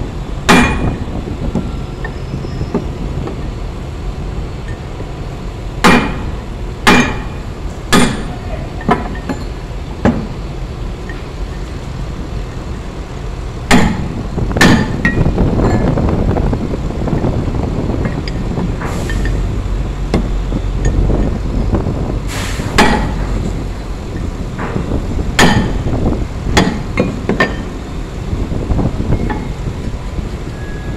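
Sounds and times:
low rumble: 0.0s - 30.6s
metal-on-metal hammer blows: 5.8s - 10.3s, 22.6s - 23.4s, 25.4s - 26.0s, 26.6s - 27.7s.

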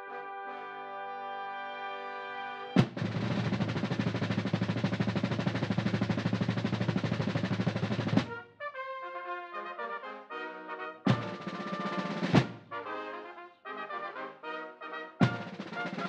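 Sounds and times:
brass fanfare: 0.0s - 4.5s, 7.6s - 16.0s
drum roll: 2.8s - 8.4s, 11.1s - 12.8s, 15.2s - 16.0s.

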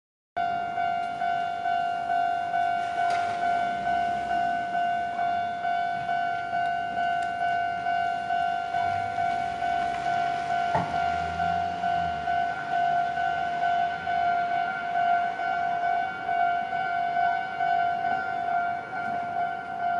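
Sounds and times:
level crossing electronic bell: 0.4s - 19.9s
low vehicle rumble: 1.1s - 19.9s
thump: 10.7s - 11.0s.

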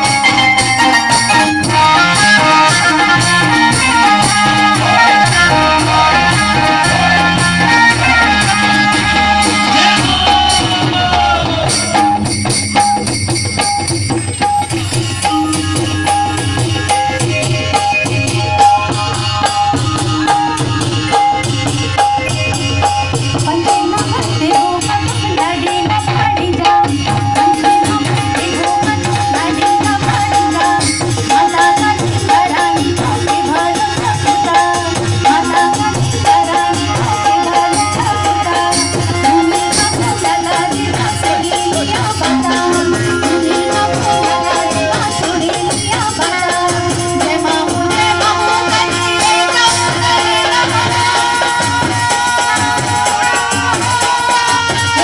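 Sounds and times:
loud folk dance music: 0.0s - 23.6s, 27.2s - 55.0s
steady drum beat: 0.0s - 55.0s
melody line: 11.9s - 18.8s, 42.2s - 45.9s
held drone note: 14.0s - 18.4s, 42.2s - 46.0s.

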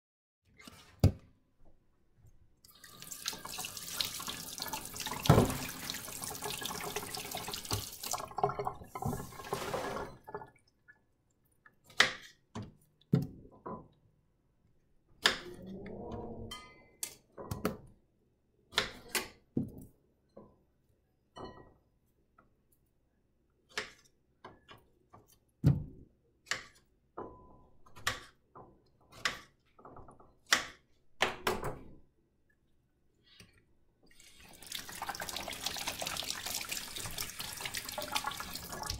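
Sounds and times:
tap running into metal sink: 5.1s - 10.0s.

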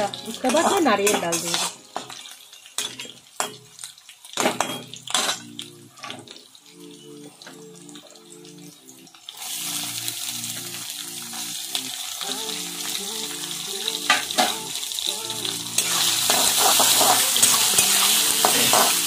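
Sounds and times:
food sizzling in hot oil: 0.0s - 19.0s
metal spatula stirring: 0.1s - 5.5s, 15.8s - 19.0s.

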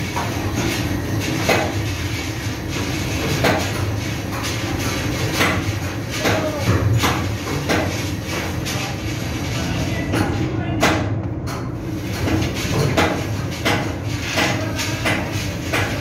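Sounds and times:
sharp metallic knocks: 10.2s - 16.0s.

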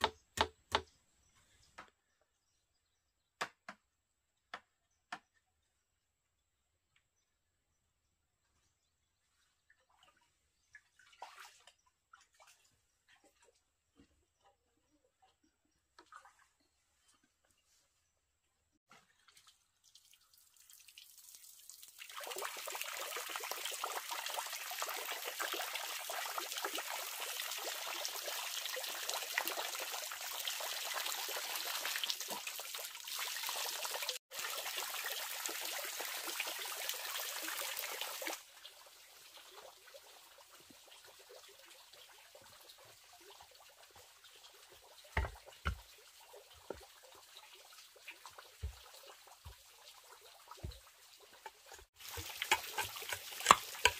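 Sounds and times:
bamboo tubes knocking: 0.0s - 0.9s, 45.2s - 45.8s, 51.4s - 53.9s
fountain water splashing into pond: 19.3s - 53.9s.

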